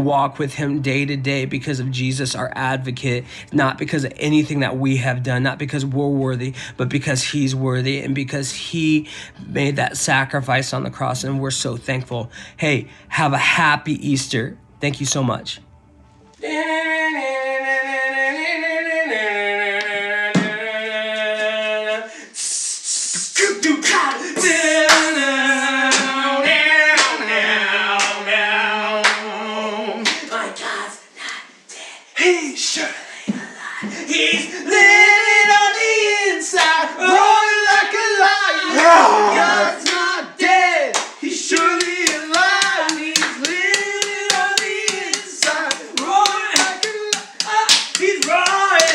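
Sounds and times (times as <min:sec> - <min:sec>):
men singing a worship song: 0:16.4 - 0:30.8, 0:33.8 - 0:48.9
steady hand clapping: 0:24.1 - 0:25.2, 0:25.9 - 0:26.2, 0:27.0 - 0:27.2, 0:28.0 - 0:28.2, 0:29.0 - 0:29.3, 0:30.0 - 0:30.3, 0:39.8 - 0:40.0, 0:40.9 - 0:48.9
sharp taps: 0:41.5 - 0:48.9.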